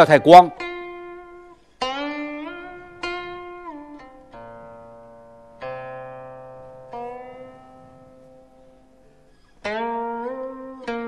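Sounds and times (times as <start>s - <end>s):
plucked string instrument notes: 0.0s - 11.0s.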